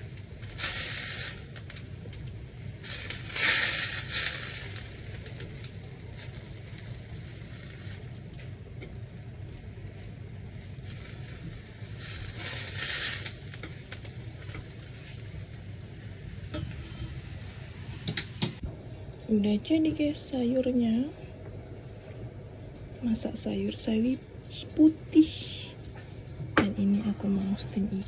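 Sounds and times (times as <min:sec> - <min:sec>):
greens sizzling: 0:00.0 - 0:16.6
steady low hum: 0:00.0 - 0:28.0.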